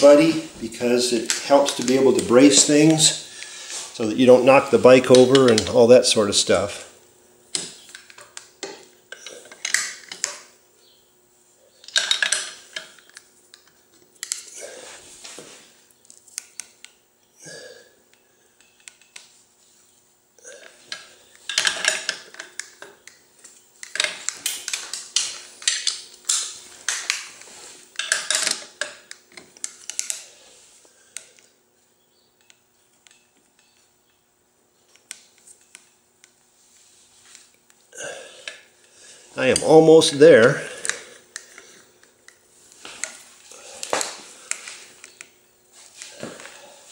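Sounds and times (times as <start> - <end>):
metal tools clinking and knocking: 11.8 - 13.2, 21.5 - 22.6, 23.8 - 27.1, 28.0 - 28.9
man grunting and breathing: 14.5 - 15.0, 17.4 - 18.0, 37.9 - 39.4.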